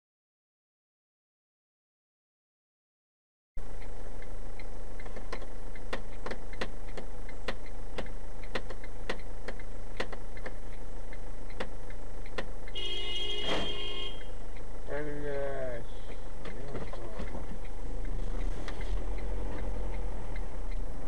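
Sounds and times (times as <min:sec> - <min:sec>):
low engine hum: 0:03.6 - 0:21.0
car turn signal clicking: 0:03.8 - 0:21.0
car bumping into car thump: 0:13.3 - 0:13.9.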